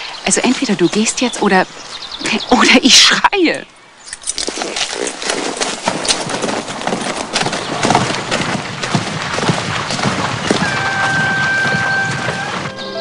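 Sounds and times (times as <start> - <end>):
horse hoofbeats on grass: 4.3 - 13.0.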